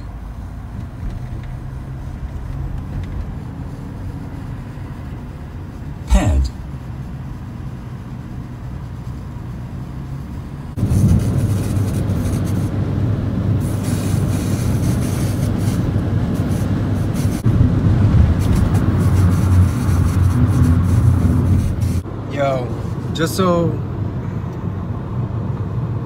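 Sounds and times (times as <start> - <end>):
tyre and engine drone: 0.0 - 26.0
wind hiss: 13.5 - 23.2.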